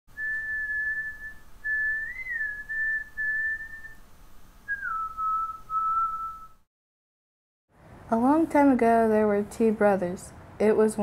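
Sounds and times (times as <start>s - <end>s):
person whistling: 0.1s - 4.0s, 4.7s - 6.7s.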